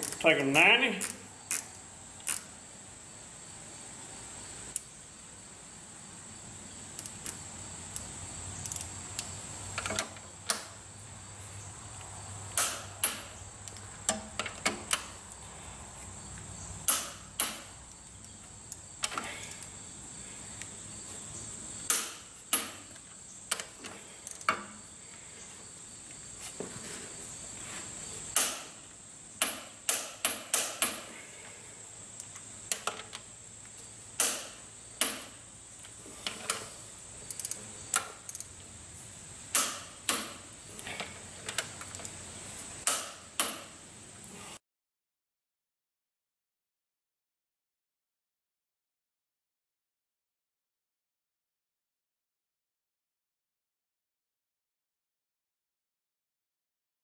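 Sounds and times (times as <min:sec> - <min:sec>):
socket wrench clicking: 0:01.0 - 0:02.5, 0:07.0 - 0:10.6, 0:37.3 - 0:38.5.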